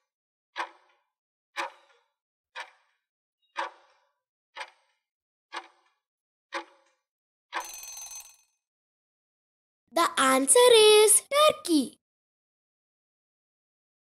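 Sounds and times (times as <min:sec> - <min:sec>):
clock-like ticks: 0:00.6 - 0:01.0, 0:01.6 - 0:03.0, 0:03.6 - 0:05.9, 0:06.5 - 0:07.0.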